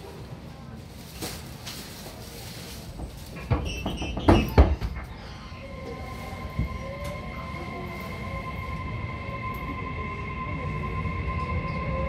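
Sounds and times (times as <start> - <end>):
electric train motors whining: 5.5 - 12.0.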